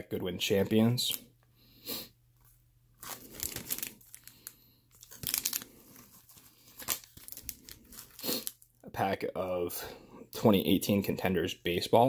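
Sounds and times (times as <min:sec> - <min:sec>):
bubble wrap and foil crinkling: 0:02.9 - 0:08.8.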